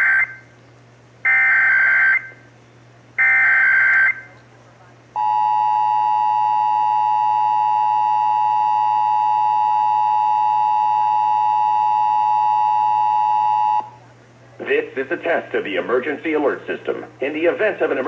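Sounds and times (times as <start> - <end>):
harsh dual tone alert signal: 1.3 - 2.5, 3.2 - 4.3, 5.2 - 14.0.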